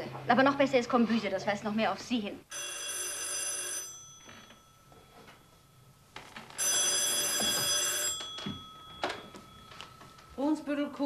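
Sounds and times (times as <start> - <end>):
telephone bell ringing: 2.5 - 10.4.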